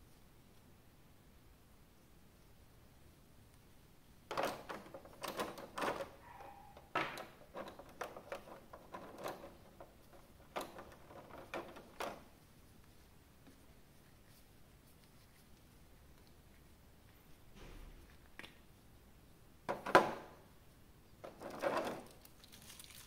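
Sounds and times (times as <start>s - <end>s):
hands handling plastic packaging: 22.0s - 23.0s.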